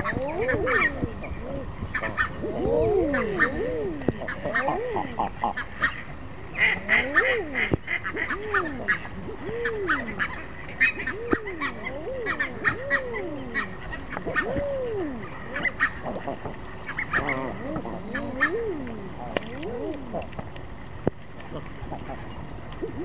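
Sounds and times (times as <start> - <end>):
eider drakes cooing: 0.0 - 6.0, 6.6 - 20.4, 21.4 - 23.0
waterfowl chattering: 3.0 - 20.4.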